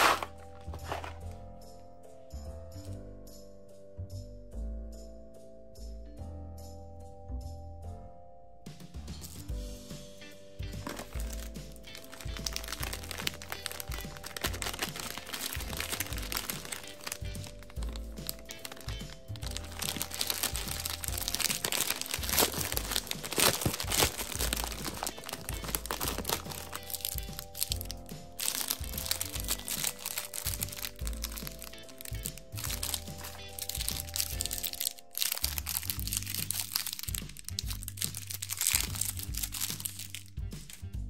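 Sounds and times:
plastic wrappers crinkling: 0:00.0 - 0:01.4, 0:10.8 - 0:40.8
light music: 0:00.0 - 0:41.0.

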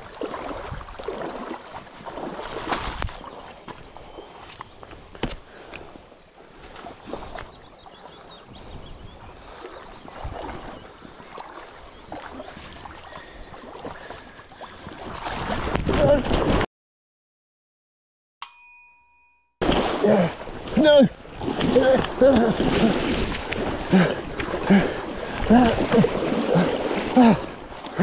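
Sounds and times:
loud splashing through water: 0:00.0 - 0:03.4, 0:14.8 - 0:16.6, 0:19.6 - 0:28.0
shallow river water running: 0:00.0 - 0:16.6, 0:19.6 - 0:28.0.

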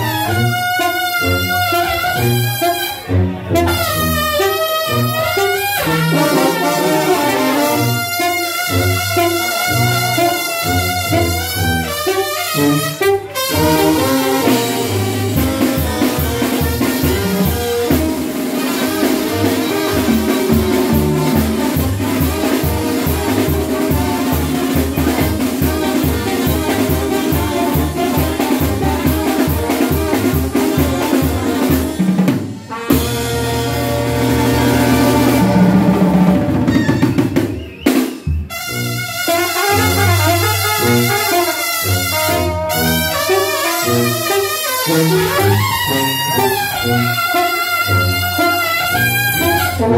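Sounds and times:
brass band playing: 0:00.0 - 0:49.9
fast drum beat: 0:13.5 - 0:38.5.

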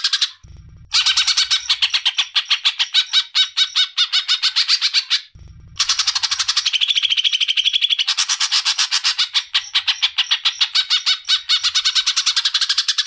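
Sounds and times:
bird chattering song: 0:00.0 - 0:13.0.

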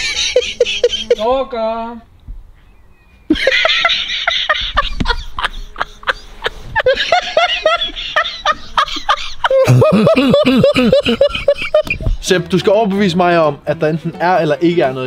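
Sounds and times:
man laughing: 0:00.0 - 0:01.6, 0:03.3 - 0:12.2.

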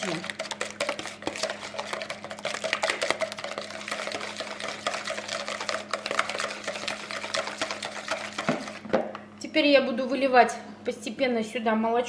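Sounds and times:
whisk beating eggs in plastic bowl: 0:00.0 - 0:08.9.

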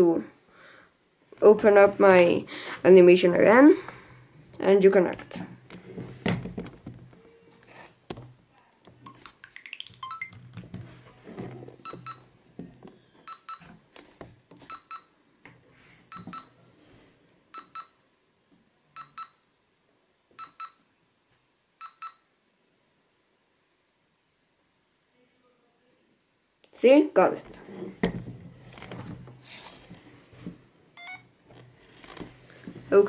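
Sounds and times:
short electronic beeps: 0:10.0 - 0:10.3.

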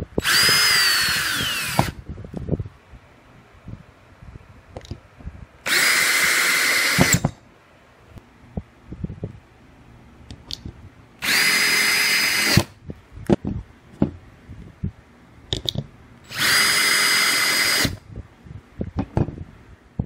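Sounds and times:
cordless drill whining: 0:00.2 - 0:02.0, 0:05.7 - 0:07.4, 0:11.2 - 0:12.8, 0:16.3 - 0:18.0.

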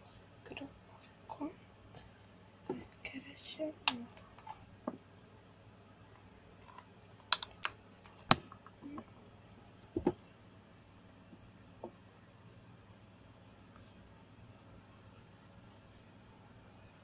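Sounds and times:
objects clicking and tapping: 0:06.6 - 0:09.2.

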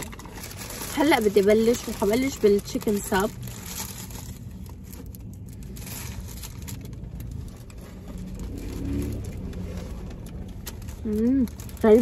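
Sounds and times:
paper wrappers rustling: 0:00.0 - 0:12.0.

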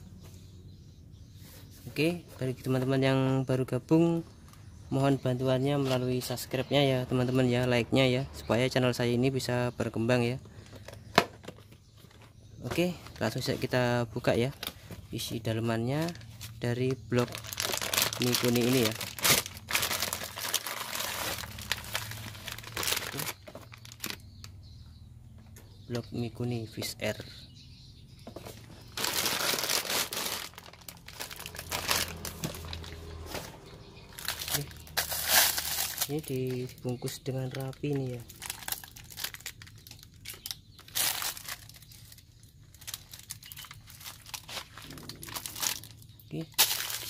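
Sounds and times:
plastic wrapping crinkling: 0:16.0 - 0:24.3, 0:28.8 - 0:33.5, 0:34.1 - 0:47.0.

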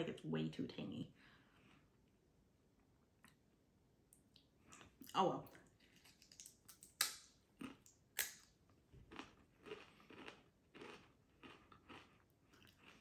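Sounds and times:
tortilla chips crunching: 0:05.9 - 0:13.0.

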